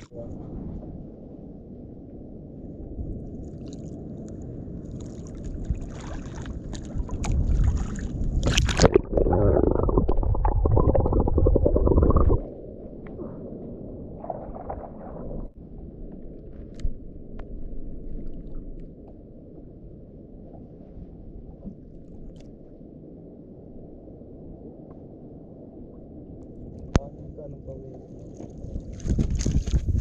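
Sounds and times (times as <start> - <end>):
wind on microphone: 0.0 - 18.8, 24.5 - 30.0
water sloshing against hull: 3.4 - 19.8, 26.4 - 30.0.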